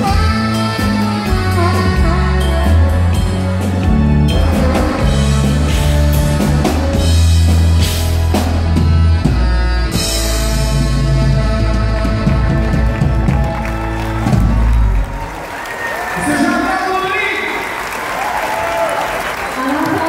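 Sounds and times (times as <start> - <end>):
saxophone: 0.0 - 14.9
drum kit: 0.0 - 15.1
electric guitar: 0.0 - 15.1
bass: 0.0 - 16.8.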